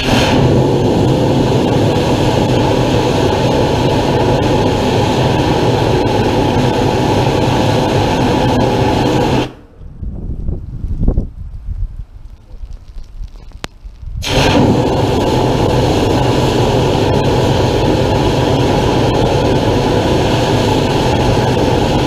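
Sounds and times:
steam blasting from boiler: 0:00.0 - 0:09.7, 0:14.2 - 0:22.0.

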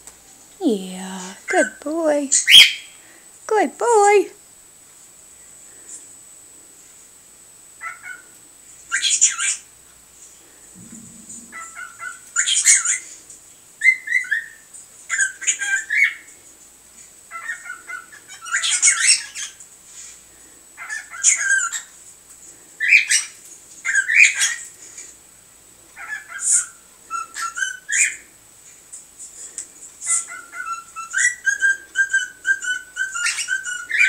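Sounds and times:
faint high-pitched whine: 0:00.0 - 0:34.0
cockatiel chirps and squawks: 0:17.3 - 0:19.6, 0:20.8 - 0:21.9, 0:22.8 - 0:24.6, 0:26.0 - 0:28.2, 0:30.0 - 0:34.0.

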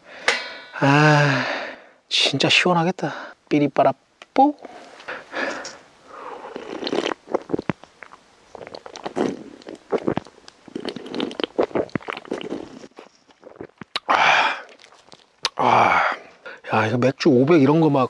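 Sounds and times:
breathy exhale: 0:00.0 - 0:02.0, 0:04.6 - 0:06.6, 0:14.1 - 0:14.7
man gulping and swallowing: 0:05.4 - 0:16.3.

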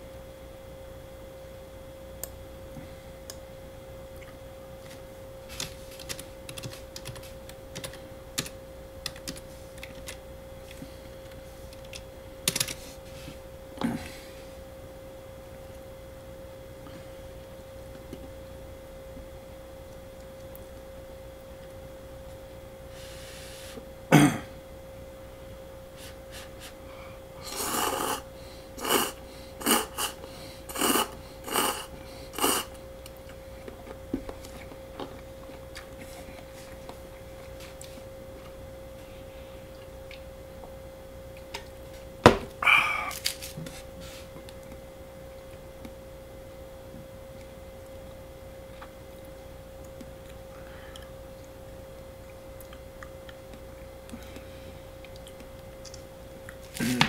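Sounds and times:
steady electrical hum: 0:00.0 - 0:57.0
slurping noodles: 0:27.4 - 0:32.7.

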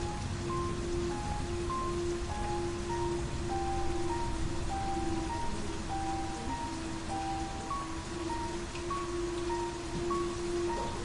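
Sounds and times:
rain hissing: 0:00.0 - 0:11.0
slow melancholy music: 0:00.0 - 0:11.0.

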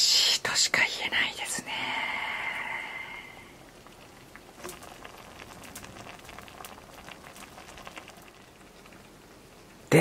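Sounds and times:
broth simmering with small pops: 0:00.0 - 0:10.0.

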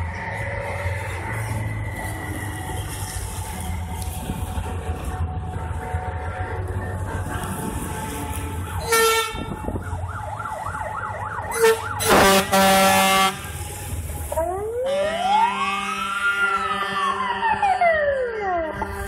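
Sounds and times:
armored vehicle engine rumble: 0:00.0 - 0:19.0
horn blasts: 0:08.8 - 0:09.7, 0:11.5 - 0:13.8
siren wailing: 0:08.8 - 0:13.4, 0:14.3 - 0:19.0
siren yelping: 0:09.4 - 0:12.6, 0:14.3 - 0:19.0.

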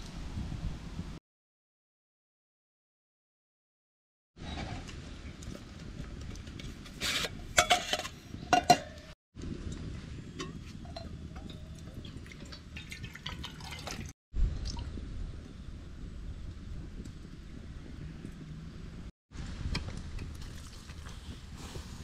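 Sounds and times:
metal pots and lid clinking: 0:07.1 - 0:09.1, 0:10.4 - 0:13.0
water pouring into pot: 0:11.4 - 0:14.1, 0:20.4 - 0:21.2.

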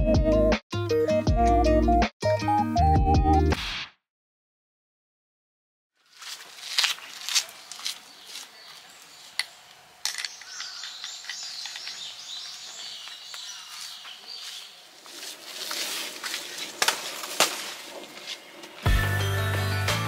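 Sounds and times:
birds chirping: 0:07.0 - 0:19.0.

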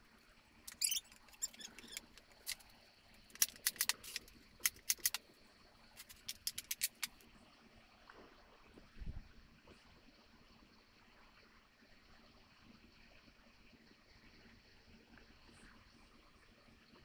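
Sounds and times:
wooden parts clicking on workbench: 0:03.3 - 0:05.2, 0:06.0 - 0:07.2.

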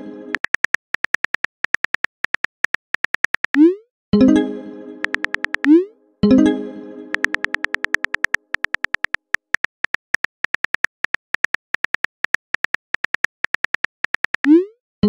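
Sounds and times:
phone keyboard clicks: 0:00.3 - 0:03.6, 0:05.0 - 0:05.8, 0:07.1 - 0:14.5.

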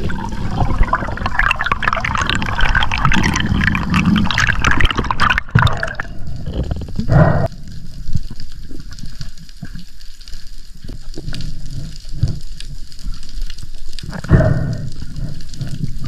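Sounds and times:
water whoosh: 0:00.0 - 0:07.2
underwater crackling and clicking: 0:00.0 - 0:16.0.

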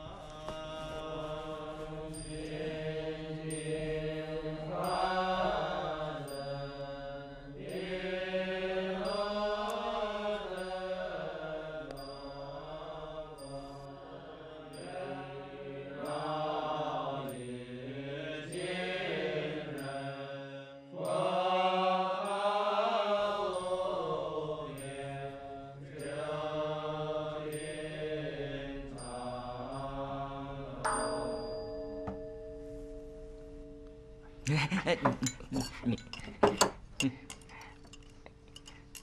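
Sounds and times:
monks chanting: 0:00.0 - 0:32.3.

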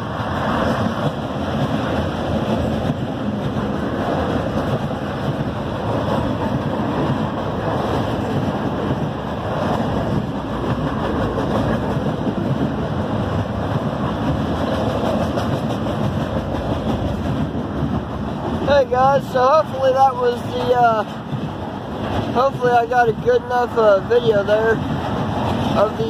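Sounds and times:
steel wheels rolling on rail: 0:00.0 - 0:26.0.

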